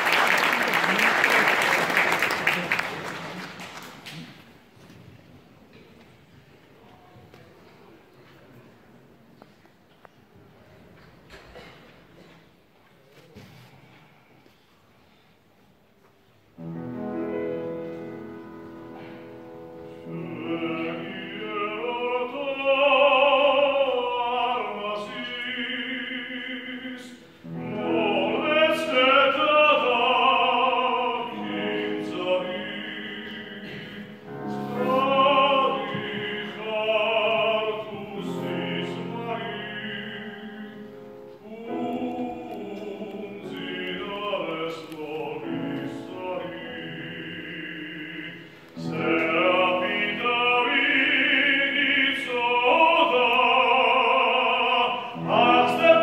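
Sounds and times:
grand piano accompaniment: 16.5s - 56.0s
man singing classical song: 16.5s - 56.0s.

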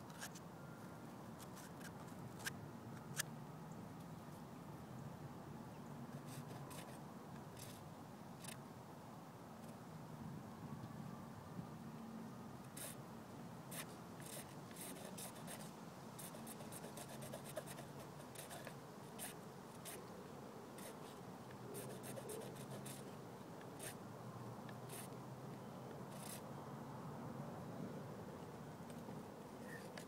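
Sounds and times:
light scratching and scraping: 0.0s - 0.4s, 1.4s - 2.6s.

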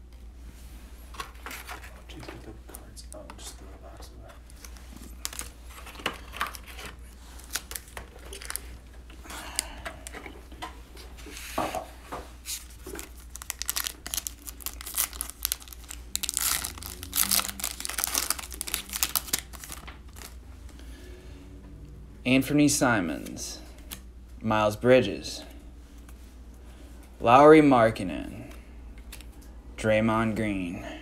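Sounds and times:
foil wrapper crinkling: 4.6s - 8.8s, 12.5s - 20.4s
wrapper being torn open: 5.1s - 8.8s, 12.6s - 20.4s.

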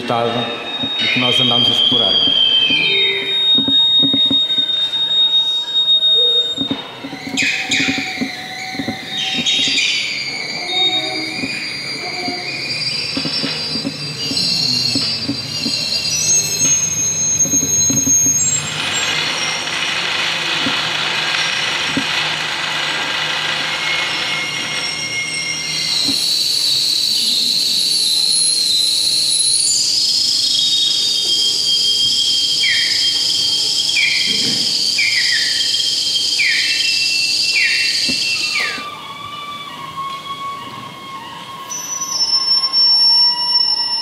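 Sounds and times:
hissing: 0.0s - 40.1s
squealing and whistling tones: 0.0s - 44.0s
steady high whistle: 0.0s - 44.0s
short falling chirps: 0.6s - 19.6s.

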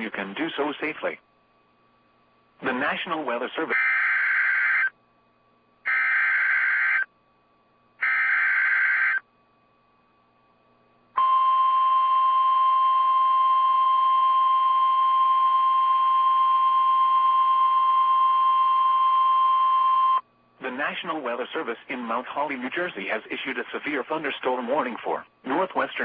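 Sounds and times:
steady alarm tone: 3.7s - 5.0s, 5.9s - 7.1s, 8.0s - 9.2s, 11.2s - 20.2s.

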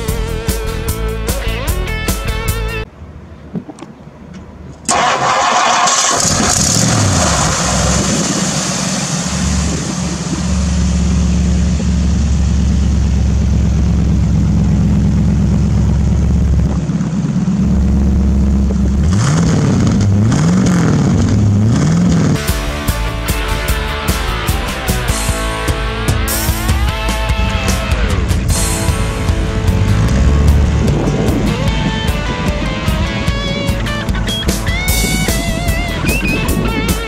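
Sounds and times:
car engine starting and revving: 4.9s - 23.6s, 26.1s - 35.8s.

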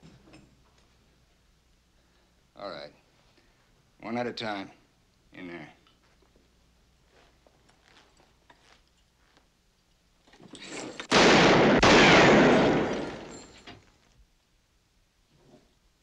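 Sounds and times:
loud reverberant crash: 11.1s - 13.5s
gunshots: 11.1s - 13.6s.

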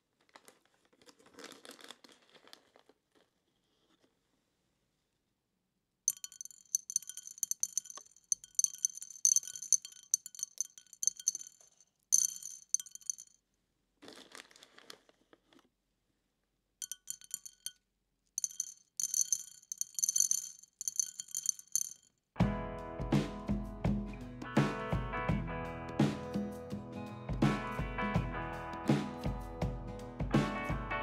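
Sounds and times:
dried beans dropping into bowl: 6.1s - 13.3s, 16.8s - 17.8s, 18.4s - 22.0s.

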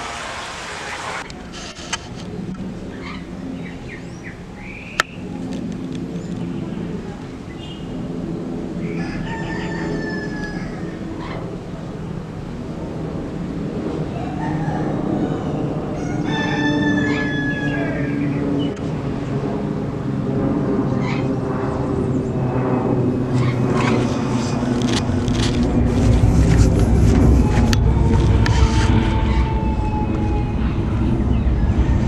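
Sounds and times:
jet engines rumbling overhead: 0.0s - 32.0s
rooster crowing: 8.8s - 11.4s, 14.1s - 18.2s, 27.2s - 32.0s.

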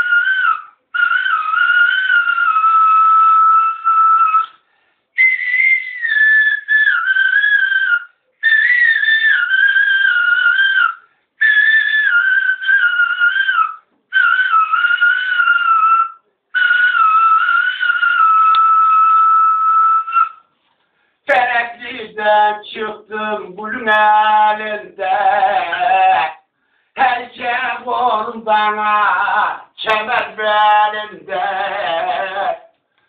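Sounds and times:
man whistling a folk melody: 0.0s - 20.5s.

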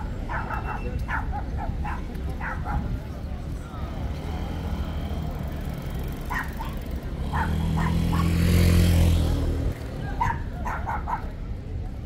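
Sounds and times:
dog barking: 0.3s - 3.0s, 6.3s - 8.5s, 10.2s - 11.3s
vehicle engine passing by: 3.7s - 10.4s.

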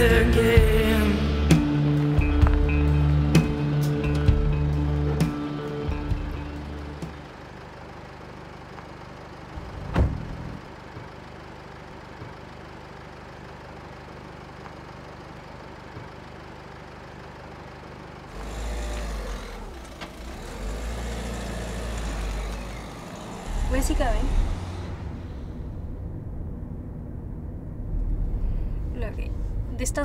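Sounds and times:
car engine pulling away: 0.0s - 29.8s
low street hum: 0.0s - 30.0s
car door shutting: 9.6s - 10.6s.

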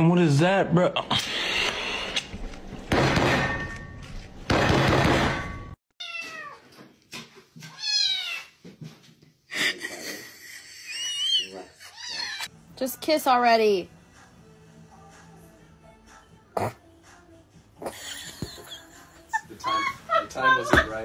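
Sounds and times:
cat meowing: 7.7s - 8.5s.

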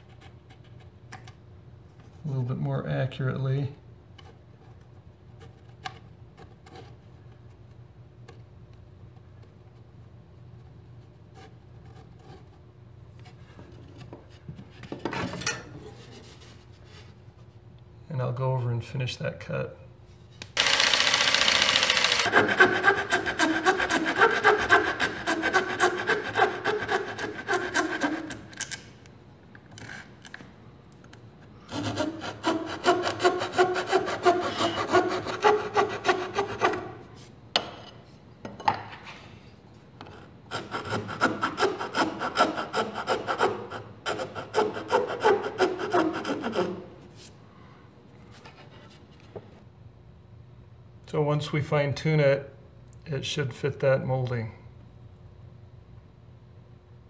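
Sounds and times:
rasp filing panel edge: 22.2s - 28.4s, 31.7s - 36.9s, 40.5s - 46.8s.

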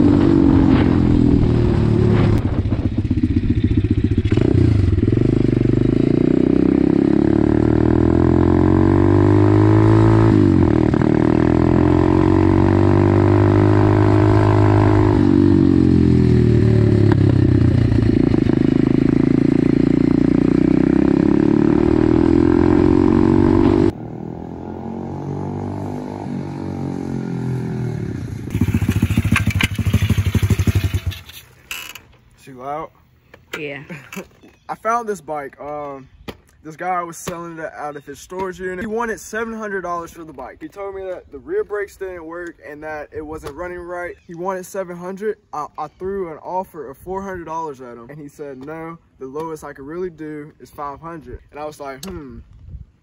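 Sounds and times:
motorbike engine revving: 0.0s - 31.9s.

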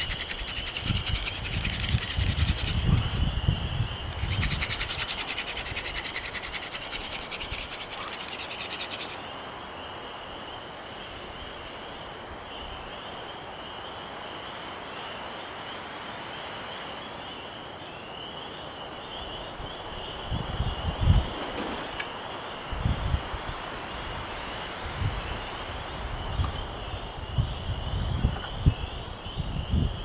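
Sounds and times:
wooden spindle rasping on board: 0.0s - 2.8s, 4.1s - 9.2s.

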